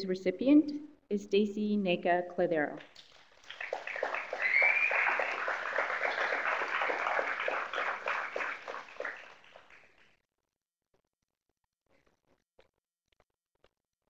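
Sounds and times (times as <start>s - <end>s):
audience applauding: 2.9s - 10.0s.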